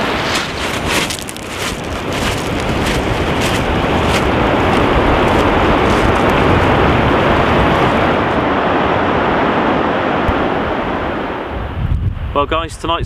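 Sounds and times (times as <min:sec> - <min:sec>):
waves washing on shingle: 0:00.0 - 0:08.5
wind rumbling on microphone: 0:00.0 - 0:13.0.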